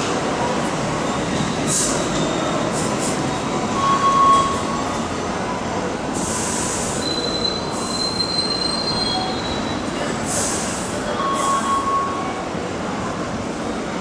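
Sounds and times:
train rumbling on rails: 0:00.0 - 0:14.0
train wheels squealing: 0:01.0 - 0:04.8, 0:06.5 - 0:12.4.

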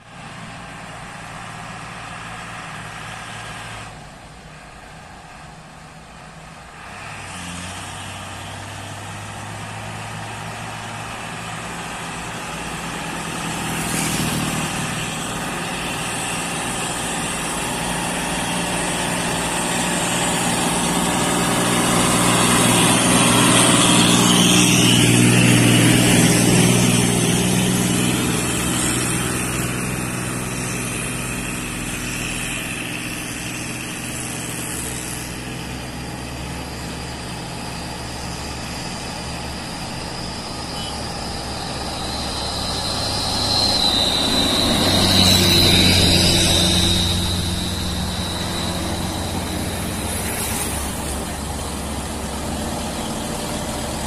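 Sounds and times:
truck engine pulling uphill: 0:00.0 - 0:54.0.

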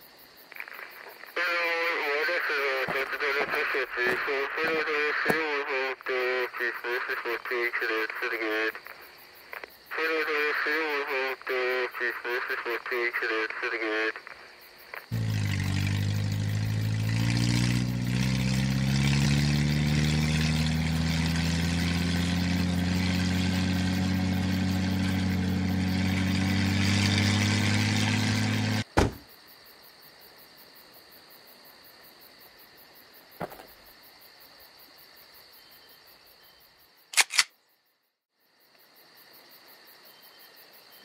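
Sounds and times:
insects chirring: 0:00.0 - 0:41.0
car engine running: 0:02.6 - 0:05.4, 0:15.1 - 0:29.2
sharp knock: 0:29.0 - 0:29.2
single click: 0:37.1 - 0:37.6.

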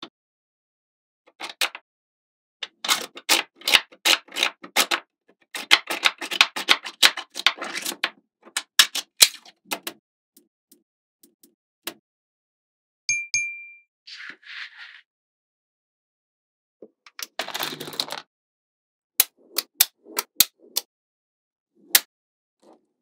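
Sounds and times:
short metallic ding: 0:13.1 - 0:13.9.

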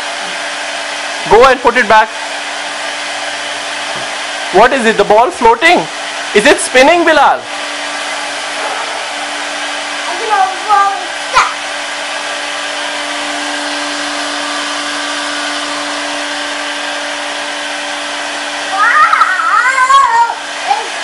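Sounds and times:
hair dryer running: 0:00.0 - 0:21.0
child vocal sounds: 0:10.1 - 0:11.6, 0:18.7 - 0:21.0.

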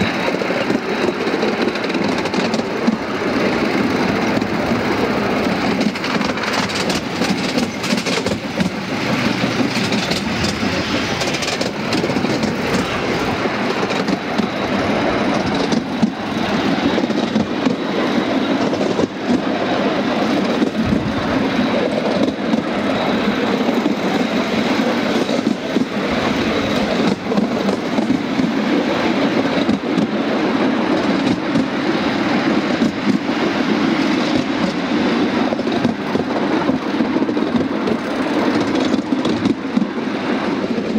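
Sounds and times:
train wheels rattling on rail: 0:00.0 - 0:40.9
quick irregular clicks: 0:03.7 - 0:10.6.

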